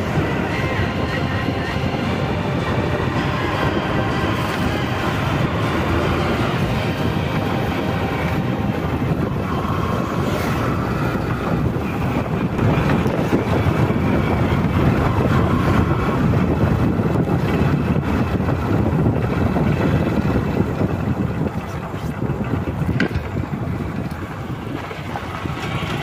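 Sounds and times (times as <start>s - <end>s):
motorcycle engine running: 0.0s - 26.0s
wind rushing over microphone: 0.0s - 26.0s.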